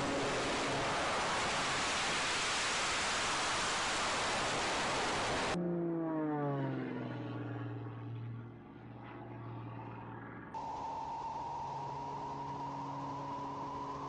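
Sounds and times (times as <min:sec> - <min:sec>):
loud rushing roar: 0:00.0 - 0:05.6, 0:10.5 - 0:14.0
propeller plane flying past: 0:05.5 - 0:14.0.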